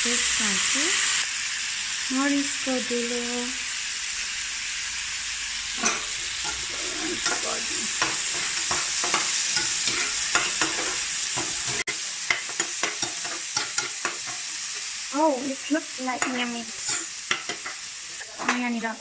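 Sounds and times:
food sizzling in a frying pan: 0.0 - 19.0
utensil scraping and knocking pan: 7.2 - 14.4.

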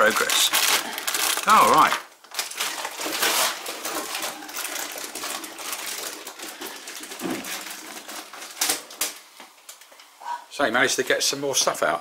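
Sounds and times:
plastic boxes clicking and clattering: 0.0 - 9.2.

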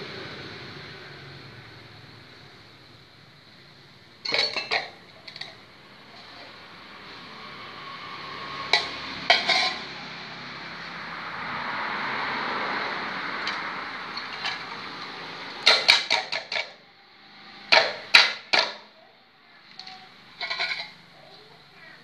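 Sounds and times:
cooking pot and lid clanking: 4.2 - 5.6, 8.6 - 9.9, 13.4 - 16.8, 17.7 - 18.9, 19.7 - 21.0.

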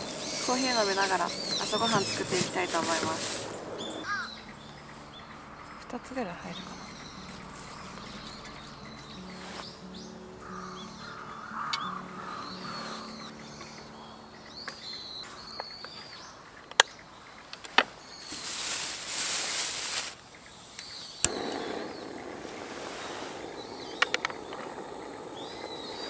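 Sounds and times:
gas burner rushing: 0.0 - 4.1, 21.2 - 26.0
gas hissing: 0.0 - 4.2, 21.2 - 26.0
small birds chirping: 0.0 - 26.0.

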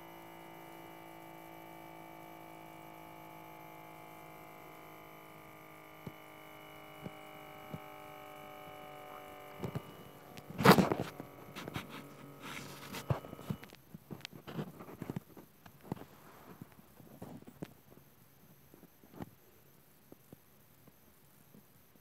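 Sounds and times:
faint steady hum: 0.0 - 22.0
small clicks: 5.9 - 14.4
phone handling rustling: 9.1 - 15.2.

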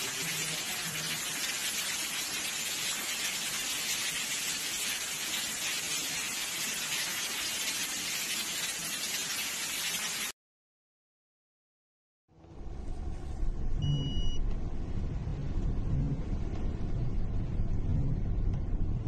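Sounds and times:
heavy rain hissing: 0.0 - 10.3
rushing water: 0.0 - 10.4.

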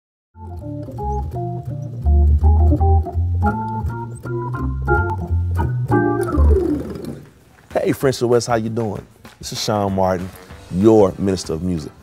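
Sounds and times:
organ playing chords: 0.4 - 7.4.

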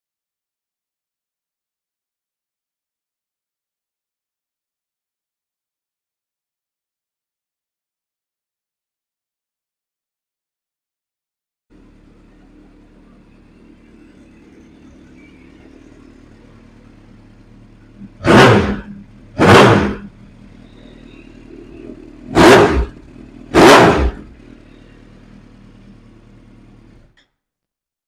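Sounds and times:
motorcycle engine idling and revving: 11.7 - 27.3.

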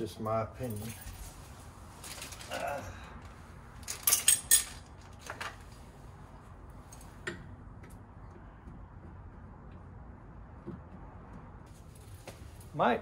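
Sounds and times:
metal tools clinking: 0.6 - 1.4, 2.0 - 2.8, 3.8 - 5.6.

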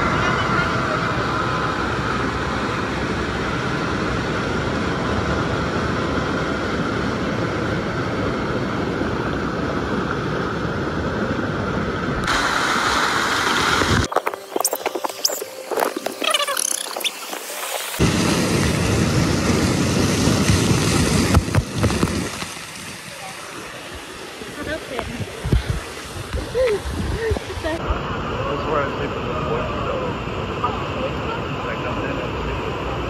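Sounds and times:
water rushing down a cascade: 0.0 - 33.0
small clicks and splashes: 21.3 - 23.2.

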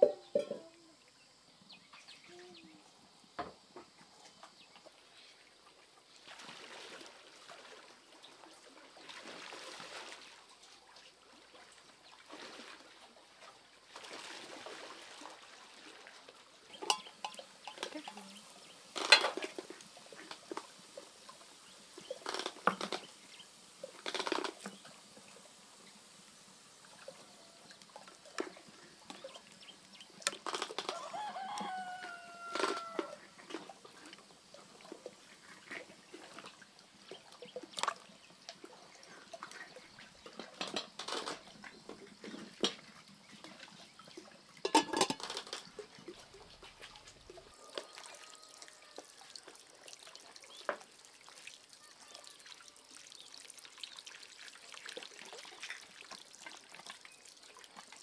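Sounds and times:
rooster crowing: 30.8 - 33.3, 47.4 - 49.5.

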